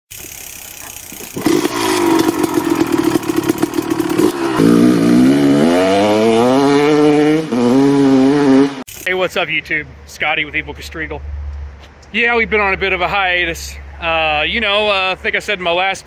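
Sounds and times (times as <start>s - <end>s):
motorcycle engine accelerating: 0.1s - 8.9s.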